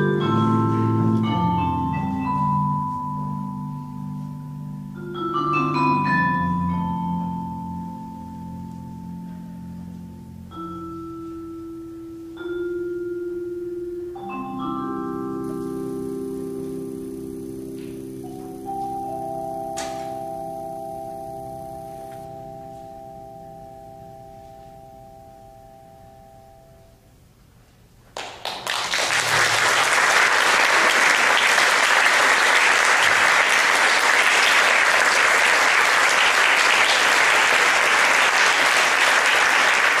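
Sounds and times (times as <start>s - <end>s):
mallet percussion chord ringing: 0.0s - 26.9s
audience applauding: 28.2s - 40.0s.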